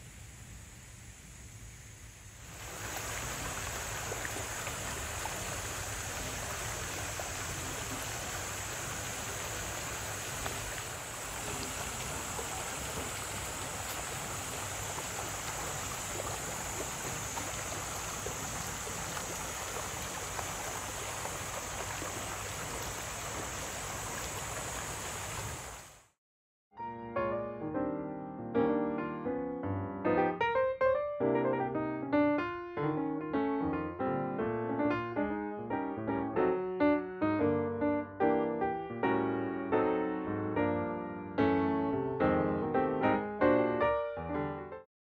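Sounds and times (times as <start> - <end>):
running water rushing: 1.9 - 26.2.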